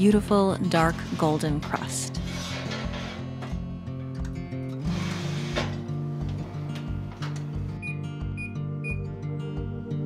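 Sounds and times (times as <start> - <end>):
metal scraping on oven rack: 0.6 - 3.6, 4.8 - 5.9
background music with bass line: 2.2 - 10.0.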